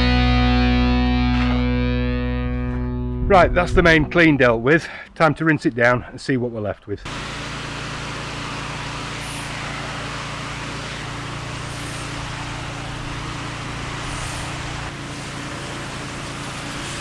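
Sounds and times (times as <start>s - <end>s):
pressure washer engine humming: 7.0s - 17.0s
high-pressure water jet hissing: 7.1s - 17.0s.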